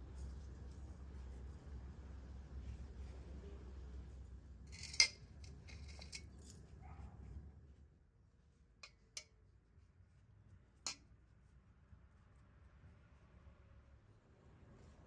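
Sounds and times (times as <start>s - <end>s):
metal spoons clinking on dishes: 4.7s - 6.6s.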